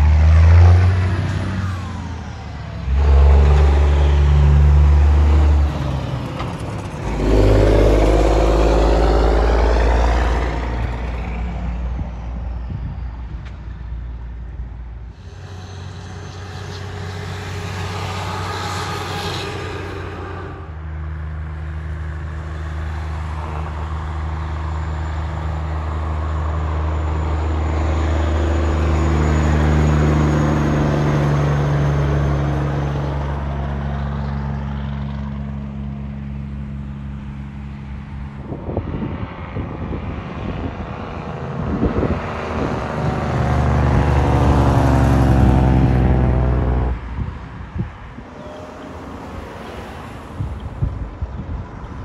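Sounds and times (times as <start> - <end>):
diesel trucks passing: 0.0 - 52.0
uneven rumbling: 14.6 - 21.9.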